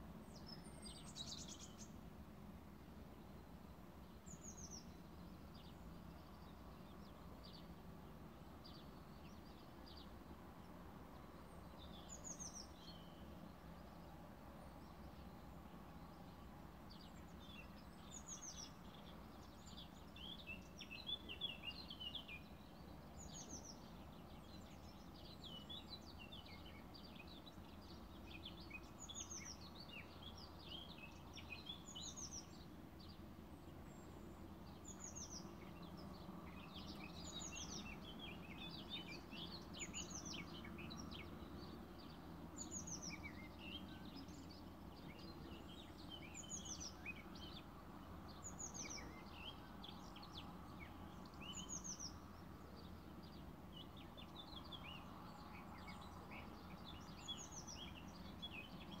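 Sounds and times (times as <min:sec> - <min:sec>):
birds singing and chirping: 0:17.0 - 0:59.0.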